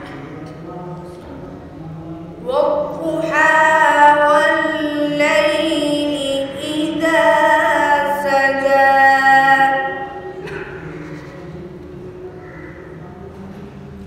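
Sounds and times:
boy reciting melodically: 0:00.0 - 0:10.8.

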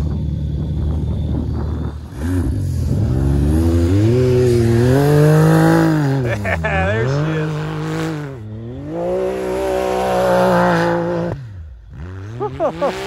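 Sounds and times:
engine running at low revs: 0:00.0 - 0:13.0
engine revving up: 0:01.3 - 0:13.0.

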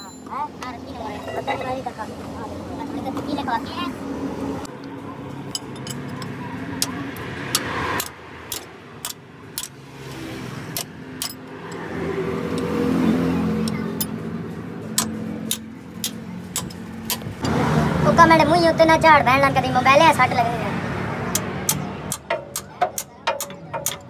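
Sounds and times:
spanners clinking on bolts: 0:05.4 - 0:07.0, 0:07.6 - 0:11.9, 0:14.9 - 0:17.6, 0:21.3 - 0:24.0.

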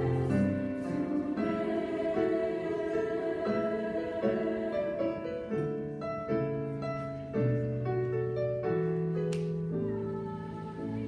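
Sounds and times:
treble choir singing: 0:00.0 - 0:06.4, 0:09.8 - 0:11.0
piano accompaniment: 0:00.0 - 0:11.0.

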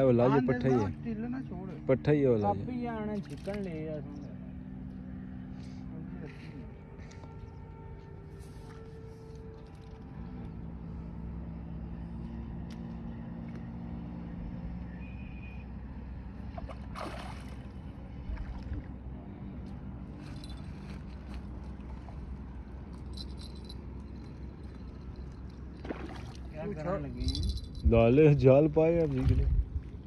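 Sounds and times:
low engine hum: 0:00.0 - 0:30.0
fish splashing at water surface: 0:16.6 - 0:18.8, 0:25.4 - 0:26.5.

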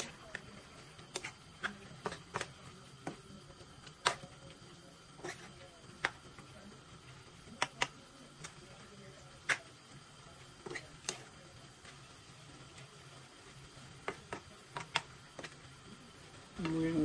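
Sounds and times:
metal spoon tapping frying pan: 0:00.0 - 0:04.6, 0:05.2 - 0:06.5, 0:07.4 - 0:08.6, 0:10.6 - 0:12.0, 0:14.0 - 0:15.6.

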